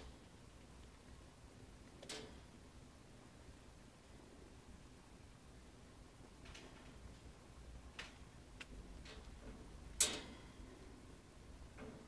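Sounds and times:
rat claws clicking on wire bars: 0:10.0 - 0:10.5.

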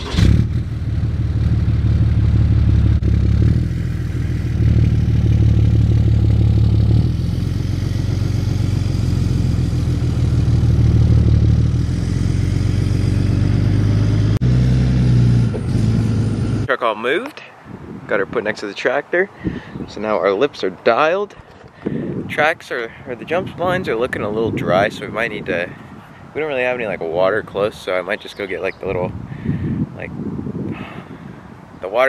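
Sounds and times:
truck engine running: 0:00.0 - 0:16.7.

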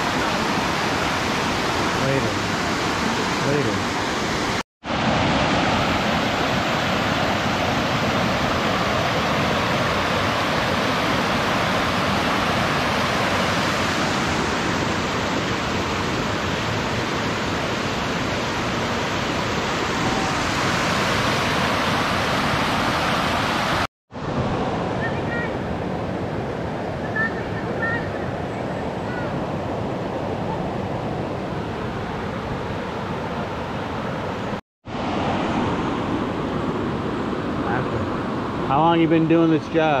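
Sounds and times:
river rushing over rocks: 0:00.0 - 0:24.8.

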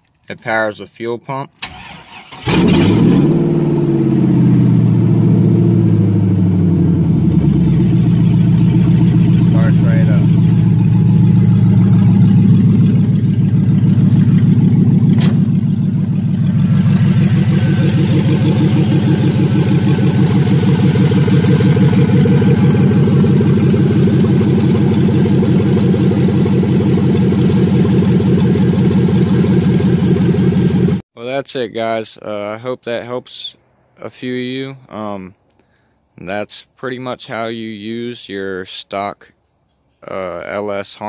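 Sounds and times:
car engine idling: 0:02.6 - 0:31.0
sharp click: 0:15.2 - 0:15.5.

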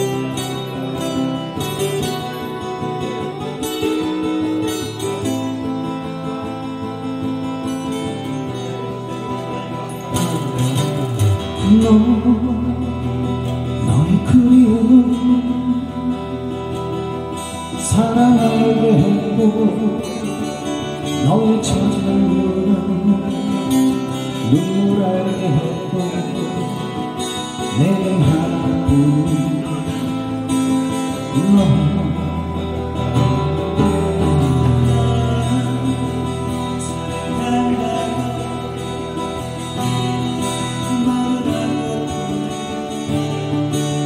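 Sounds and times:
acoustic guitars strummed and picked: 0:00.0 - 0:44.0
man singing a slow ballad: 0:09.3 - 0:44.0.

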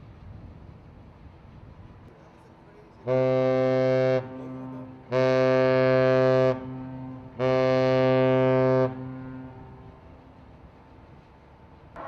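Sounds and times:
ship's horn blasts: 0:03.0 - 0:10.7.

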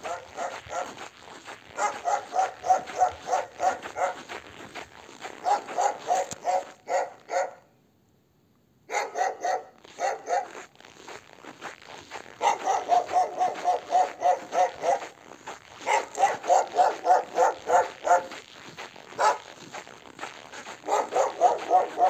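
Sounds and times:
dog barking rapidly: 0:00.0 - 0:01.1, 0:01.7 - 0:04.4, 0:05.4 - 0:07.7, 0:08.9 - 0:10.7, 0:12.3 - 0:19.7, 0:20.6 - 0:22.0.

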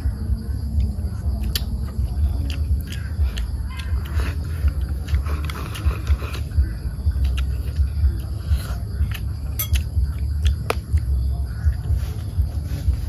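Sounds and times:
chopsticks clicking on bowls: 0:09.5 - 0:10.8.

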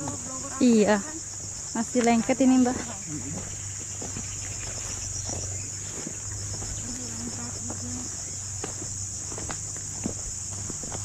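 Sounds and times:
footsteps on dirt path: 0:00.0 - 0:11.0
high-pitched insect chorus: 0:00.0 - 0:11.0.

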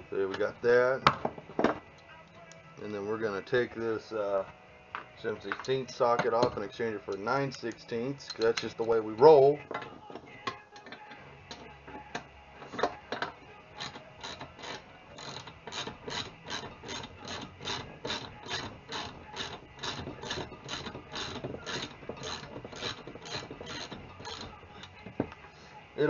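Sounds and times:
hand ratchet clicking: 0:09.8 - 0:25.4.

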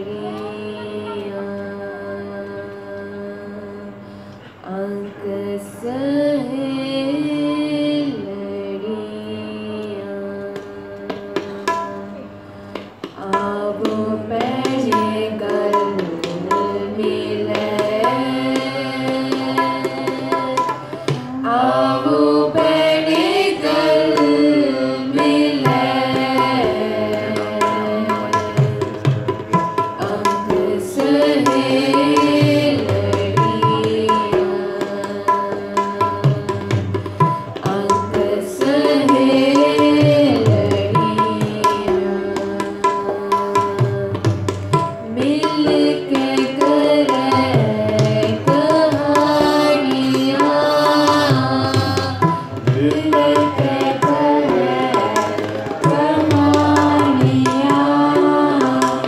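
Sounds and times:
tabla rhythm: 0:00.0 - 0:04.0, 0:04.6 - 0:59.0
woman singing a hymn: 0:00.0 - 0:12.3, 0:13.2 - 0:28.8, 0:45.0 - 0:59.0.

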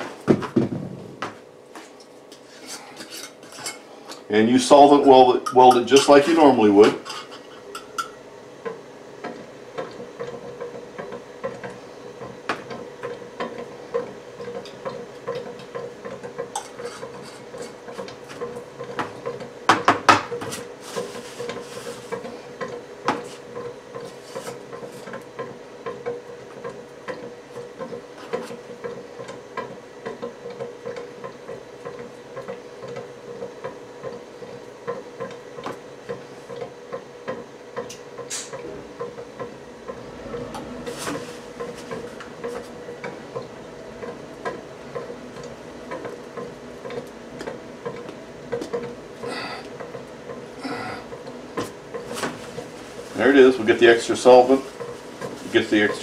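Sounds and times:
faint hum: 0:39.6 - 0:45.9, 0:49.0 - 0:49.8, 0:50.5 - 0:51.3.

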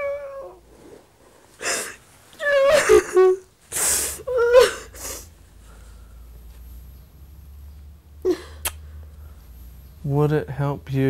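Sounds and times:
woman sobbing: 0:01.6 - 0:05.3, 0:08.2 - 0:08.6
woman blowing nose: 0:03.7 - 0:05.3.

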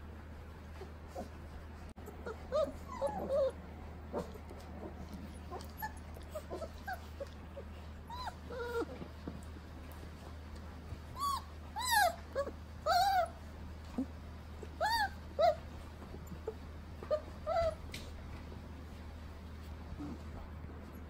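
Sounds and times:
puppies whimpering and squeaking: 0:02.0 - 0:09.2, 0:11.1 - 0:17.9.

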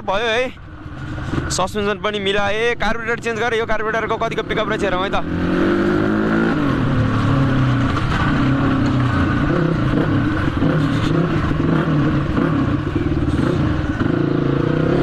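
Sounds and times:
dirt bike engine under throttle: 0:04.3 - 0:15.0.

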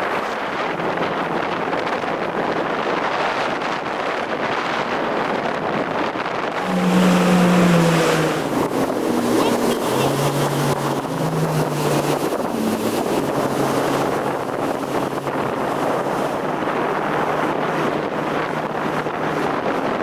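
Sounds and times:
jet ski engine running: 0:00.0 - 0:20.0
wind buffeting microphone: 0:00.0 - 0:20.0
rush of water spray: 0:06.5 - 0:20.0.

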